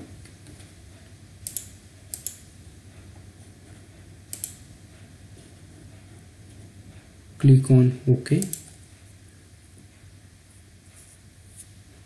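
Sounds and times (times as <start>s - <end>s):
keyboard and mouse clicks: 1.4s - 2.4s, 4.3s - 4.6s, 8.4s - 8.8s.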